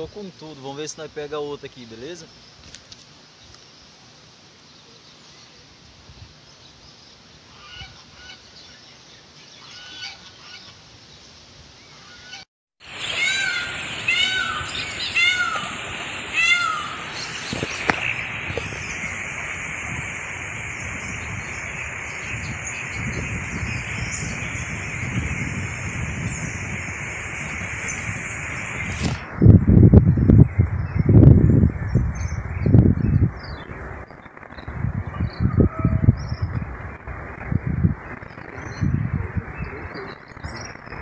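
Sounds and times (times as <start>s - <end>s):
wind noise on microphone: 6.0s - 6.4s, 12.9s - 41.0s
geese honking: 7.5s - 8.5s, 9.6s - 10.8s, 12.0s - 19.2s.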